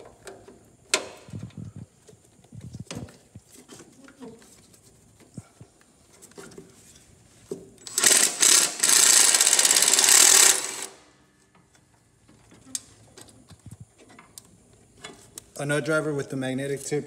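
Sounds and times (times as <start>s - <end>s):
impact driver rattling: 7.8s - 11.0s.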